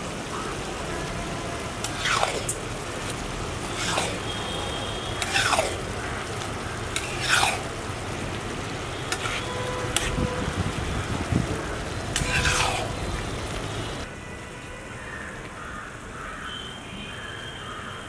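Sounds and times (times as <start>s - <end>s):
spatula stirring thick sauce: 3.7s - 4.2s, 5.2s - 5.8s, 6.9s - 7.7s, 9.1s - 10.1s, 12.2s - 13.0s.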